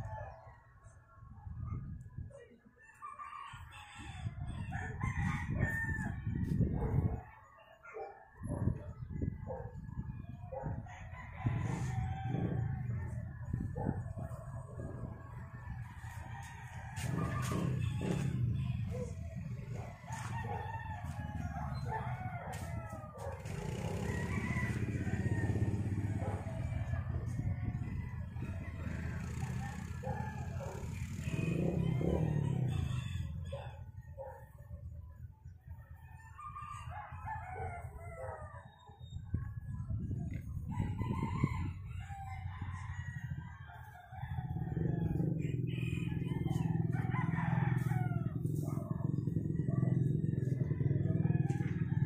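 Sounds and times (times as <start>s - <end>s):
rooster crowing: 2.9s - 6.6s, 10.7s - 13.6s, 14.2s - 34.3s, 36.2s - 38.7s, 40.6s - 52.0s.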